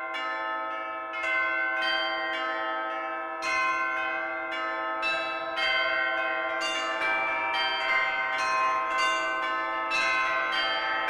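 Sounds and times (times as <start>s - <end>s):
church bells ringing: 0.0s - 11.0s.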